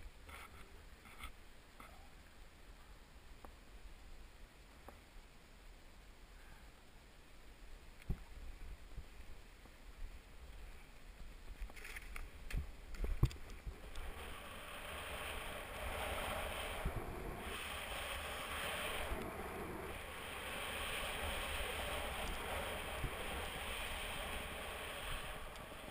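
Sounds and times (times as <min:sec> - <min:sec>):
wind rumbling on microphone: 0:08.0 - 0:25.9
snowboard hissing through snow: 0:13.7 - 0:25.9.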